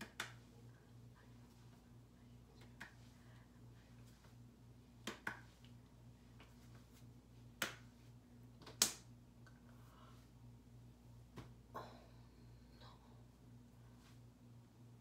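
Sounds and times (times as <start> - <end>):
hand slaps: 0.0 - 0.5, 5.0 - 5.7, 7.6 - 8.0, 8.6 - 9.1
low steady hum: 0.0 - 15.0.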